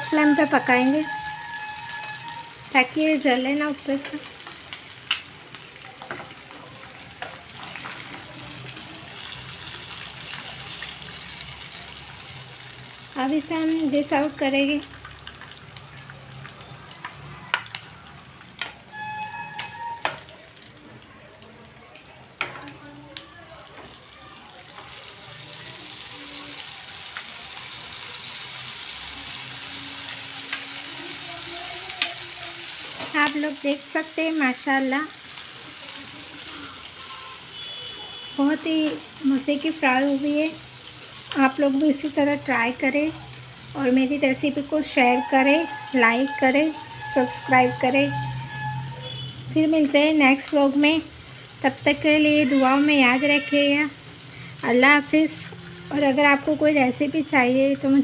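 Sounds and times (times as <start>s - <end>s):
meat sizzling in oil: 0.0s - 58.0s.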